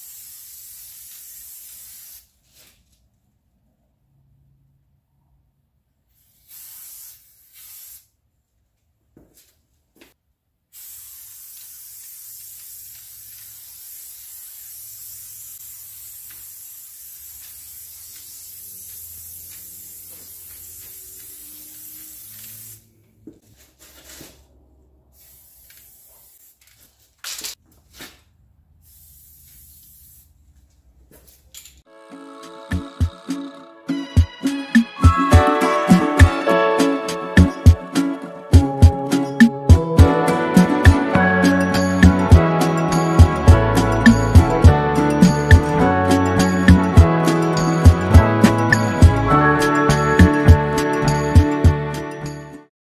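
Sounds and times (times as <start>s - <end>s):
spray paint can hissing: 0.0s - 2.4s, 6.1s - 8.2s, 10.7s - 22.9s, 25.1s - 26.7s, 28.8s - 30.4s, 43.8s - 48.0s.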